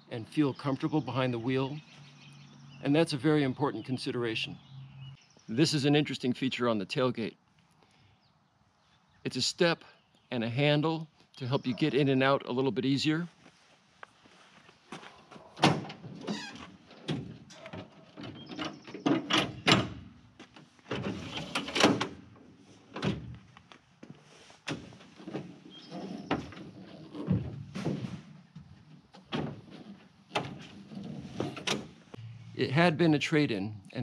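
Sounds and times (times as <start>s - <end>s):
tailgate metal clunks and rattles: 15.4s - 20.2s, 20.9s - 23.3s, 24.7s - 32.0s.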